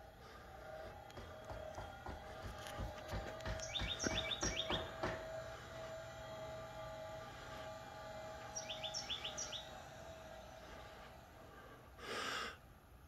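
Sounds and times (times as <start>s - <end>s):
gate motor whine: 0.0s - 12.4s
bird chirping: 3.4s - 5.0s, 8.4s - 9.9s.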